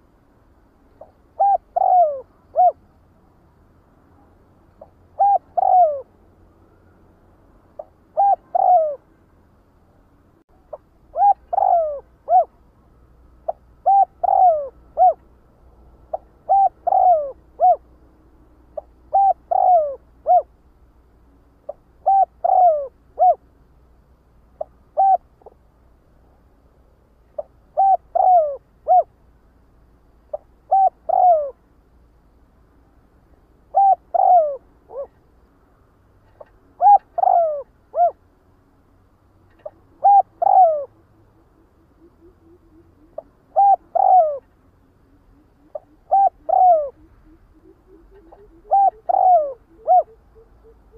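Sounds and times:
dove cooing: 0:01.0 - 0:02.8, 0:04.8 - 0:06.1, 0:07.8 - 0:09.0, 0:10.6 - 0:12.7, 0:13.4 - 0:15.3, 0:16.1 - 0:17.9, 0:18.8 - 0:20.6, 0:21.7 - 0:23.4, 0:24.6 - 0:25.6, 0:27.4 - 0:29.1, 0:30.3 - 0:31.6, 0:33.7 - 0:35.2, 0:36.3 - 0:38.2, 0:39.5 - 0:50.9.

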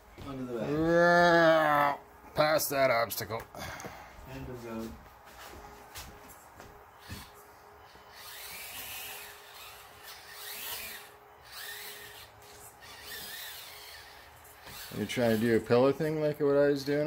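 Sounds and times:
toy car motor whining: 0:07.0 - 0:15.8.

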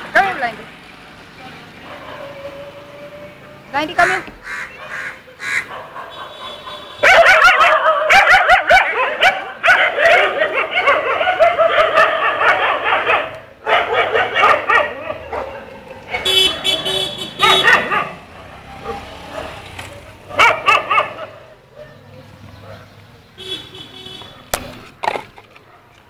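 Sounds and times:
dogs barking and yipping: 0:01.8 - 0:23.0, 0:24.2 - 0:26.0.

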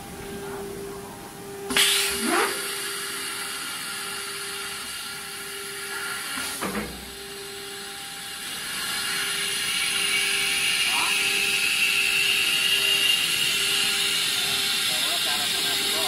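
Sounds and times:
steady machine hum: 0:00.0 - 0:16.0
rising motor whines: 0:01.7 - 0:16.0.

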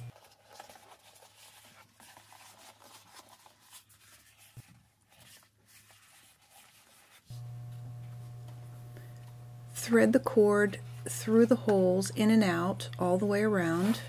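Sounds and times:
fabric rustling and rubbing: 0:00.1 - 0:08.4, 0:13.6 - 0:14.0.

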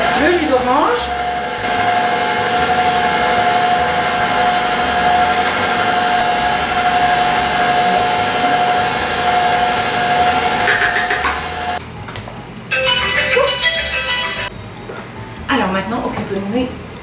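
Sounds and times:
stand mixer whining: 0:00.0 - 0:11.8.

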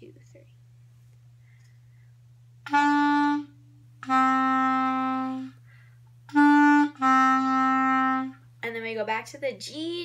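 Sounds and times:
clarinet notes: 0:02.6 - 0:05.6, 0:06.3 - 0:08.4.

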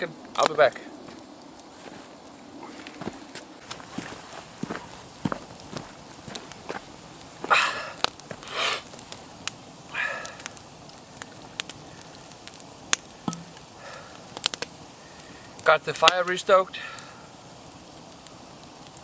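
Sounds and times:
campfire crackling and popping: 0:00.0 - 0:19.0
footsteps crunching in snow: 0:01.0 - 0:07.6.

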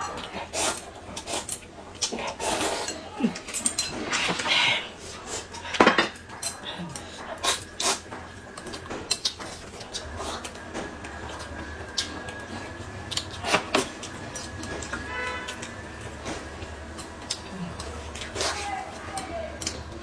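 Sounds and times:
chewing: 0:06.2 - 0:15.8, 0:16.6 - 0:19.9.

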